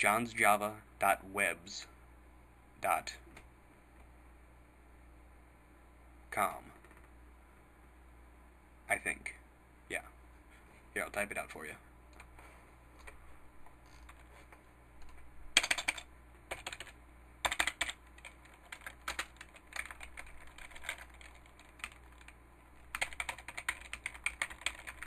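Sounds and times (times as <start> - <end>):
computer keyboard typing: 6.8 - 7.1, 13.9 - 14.4, 15.0 - 25.0.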